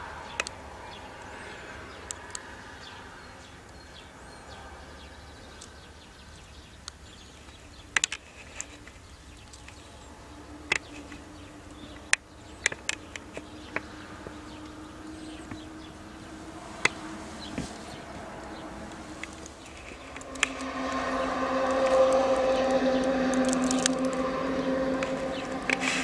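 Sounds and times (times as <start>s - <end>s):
faint steady hum: 0.0s - 26.0s
sharp clicks and ticks: 0.4s - 0.6s, 18.5s - 26.0s.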